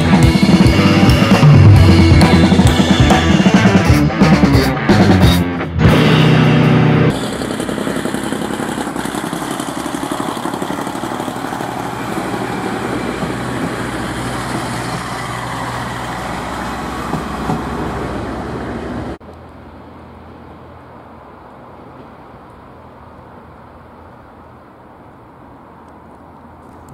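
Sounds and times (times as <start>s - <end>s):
diesel engine running: 0.0s - 19.2s
train wheels rolling on rails: 7.1s - 19.2s.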